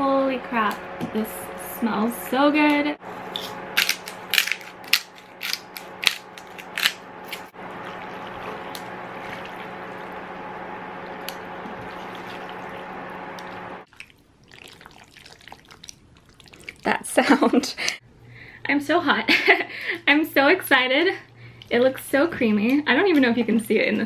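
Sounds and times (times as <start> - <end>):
electric stovetop humming: 0.0 - 15.0.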